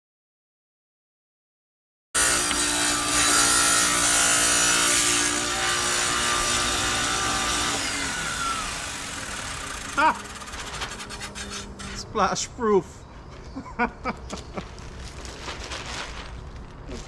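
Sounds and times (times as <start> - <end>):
tile saw running: 2.2 - 11.9
saw winding down whine: 2.2 - 12.0.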